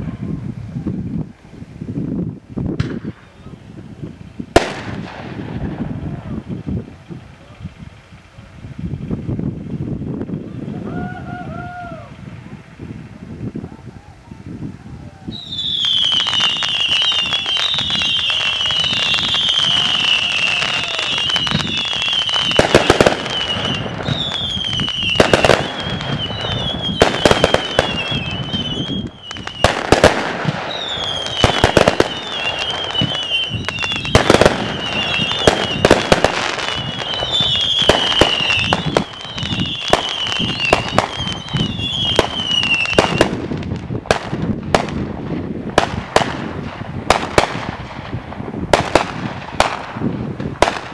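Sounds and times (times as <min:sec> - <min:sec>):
fireworks bangs and crackles: 0:00.0 - 0:50.9
high wavering whistle: 0:15.3 - 0:22.6, 0:23.2 - 0:29.7, 0:36.6 - 0:43.2.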